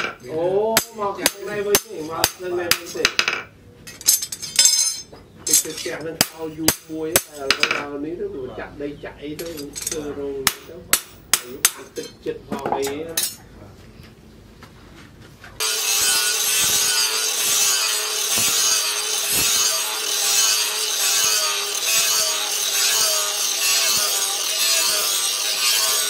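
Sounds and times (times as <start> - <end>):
angle grinder grinding steel: 15.6 - 26.0.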